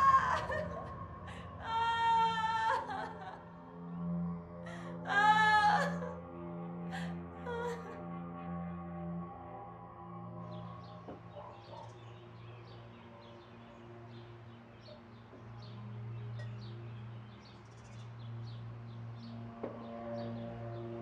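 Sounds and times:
ambient music drone: 0.0 - 21.0
small birds chirping: 10.4 - 21.0.

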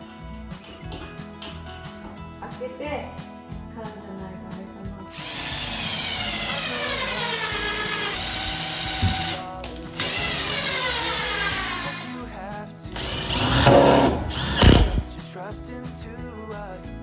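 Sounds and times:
background music: 0.0 - 17.0
impact driver drilling into wood: 5.1 - 12.2, 13.0 - 15.1.

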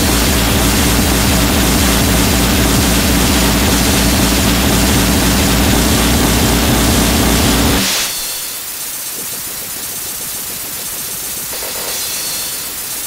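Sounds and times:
hardcore electronic dance music: 0.0 - 8.2.

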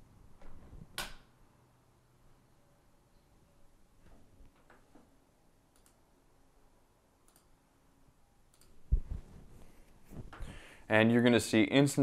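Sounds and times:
faint clicks: 5.7 - 6.0, 7.2 - 7.5, 8.5 - 8.8.

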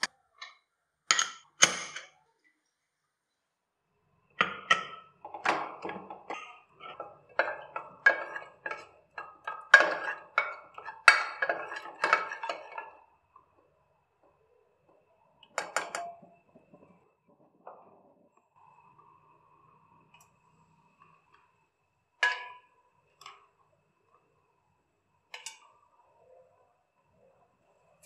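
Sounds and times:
lid and ladle clinking on pot: 1.1 - 2.1, 4.4 - 13.1, 15.5 - 16.4, 22.2 - 23.4, 25.4 - 25.7.

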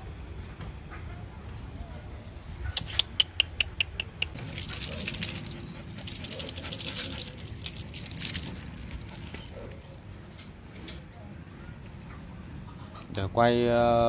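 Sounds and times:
dog claws clicking on tiles: 2.8 - 10.2
jingling rattle: 4.0 - 10.4.

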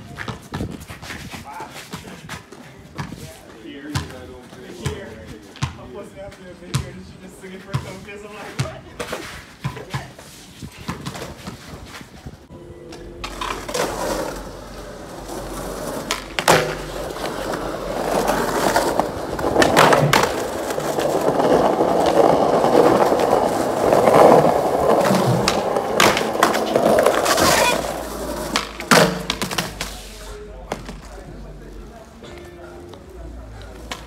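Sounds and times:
skateboard wheels rolling on concrete: 0.0 - 5.6, 8.2 - 34.0
skateboard clacking on ground: 12.9 - 30.1, 33.6 - 34.0.

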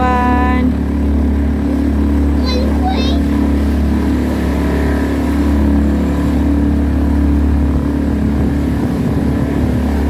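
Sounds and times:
outboard motor droning: 0.0 - 10.0.

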